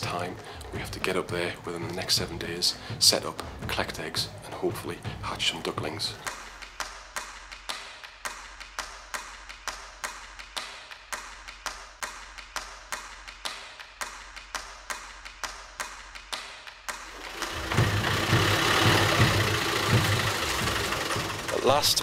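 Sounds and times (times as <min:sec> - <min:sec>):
car engine idling: 0:17.1 - 0:22.0
clock-like ticking: 0:17.1 - 0:22.0.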